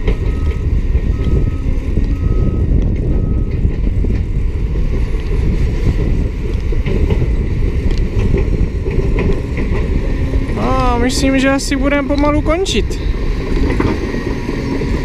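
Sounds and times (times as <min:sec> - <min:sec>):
bulldozer diesel rumble: 0:00.0 - 0:15.0
backup alarm beeping: 0:00.2 - 0:03.6.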